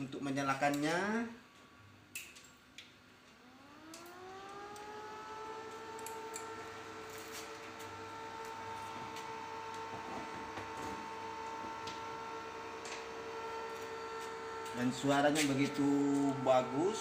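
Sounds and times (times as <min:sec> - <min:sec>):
rising electronic whine: 0:03.4 - 0:17.0.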